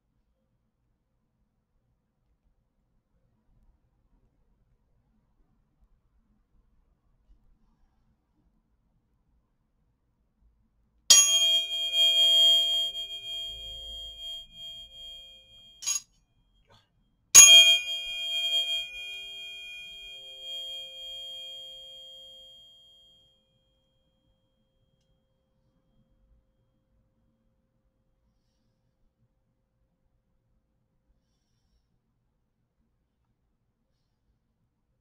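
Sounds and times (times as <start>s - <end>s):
tuning fork ringing: 11.1s - 16.0s, 17.4s - 23.3s.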